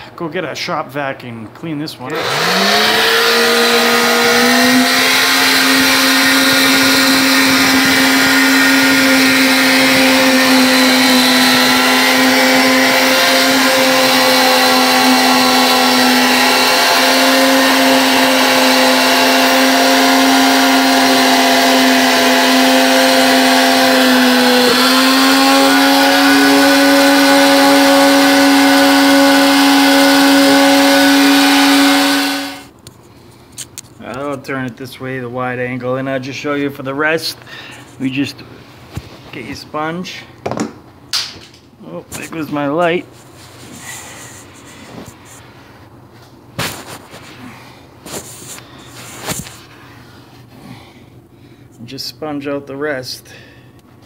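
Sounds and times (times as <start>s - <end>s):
shop vacuum motor whine: 2.1s - 32.7s.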